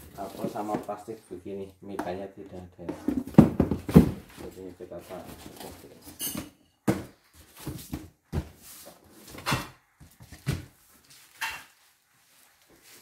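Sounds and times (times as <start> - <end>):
cardboard scraping and rustling: 0.0 - 1.0, 2.9 - 6.1
knocks and thumps on cardboard box: 2.9 - 4.6, 6.8 - 8.6.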